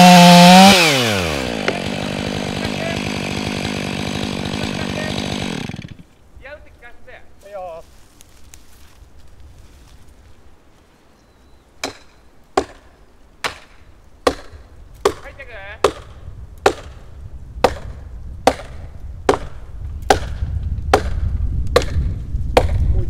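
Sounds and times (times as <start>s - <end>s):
wedge being hammered: 11.8s - 12.8s.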